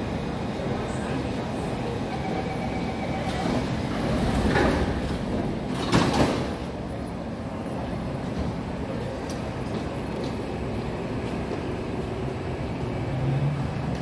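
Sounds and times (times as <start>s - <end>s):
station noise: 0.0s - 5.9s
train doors closing: 0.0s - 14.0s.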